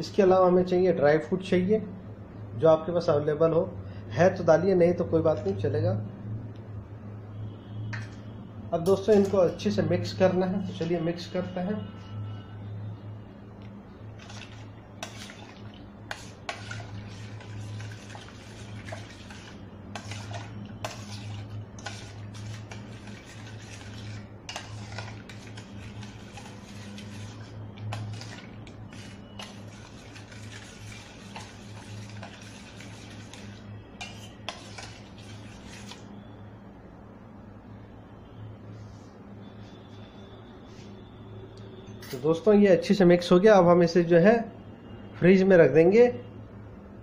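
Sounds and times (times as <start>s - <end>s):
liquid swishing: 14.1s - 36.3s.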